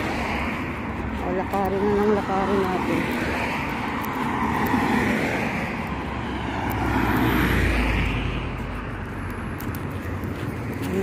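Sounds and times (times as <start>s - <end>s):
car passing close: 2.2s - 8.6s.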